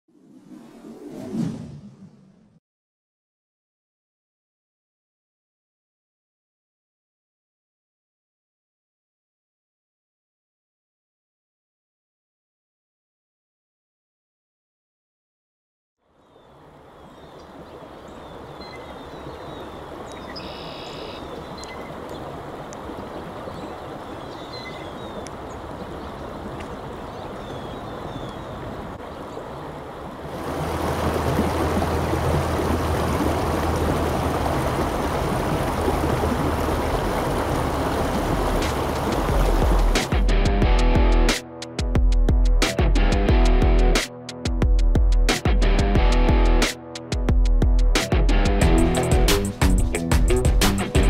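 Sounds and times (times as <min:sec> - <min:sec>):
creek running over stones: 0:16.6 - 0:40.3.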